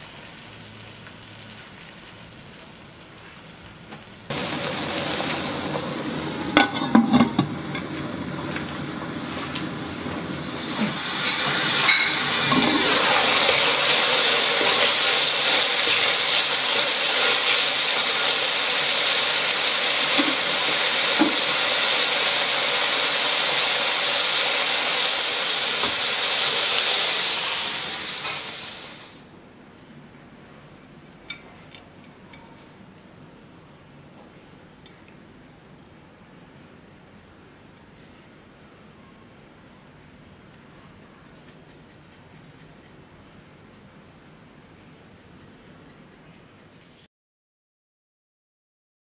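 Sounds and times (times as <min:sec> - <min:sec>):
meat sizzling in a wok: 0:00.0 - 0:29.2.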